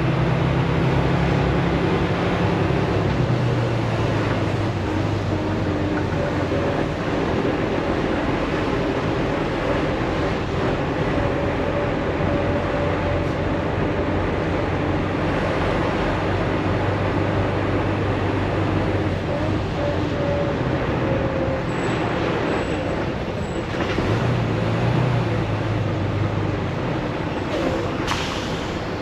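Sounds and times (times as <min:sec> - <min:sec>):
diesel engine drone: 0:00.0 - 0:29.0
tyre and road noise: 0:00.0 - 0:29.0.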